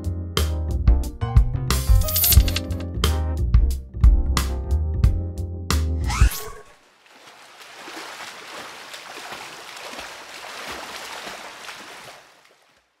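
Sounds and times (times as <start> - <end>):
water lapping and splashing: 6.7 - 13.0.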